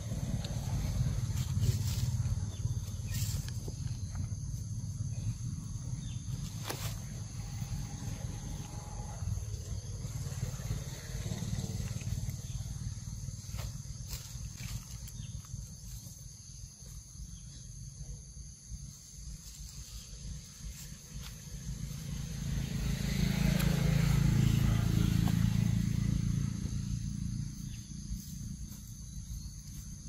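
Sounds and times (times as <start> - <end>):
low rumble: 0.0 - 15.4
high insect drone: 0.0 - 30.0.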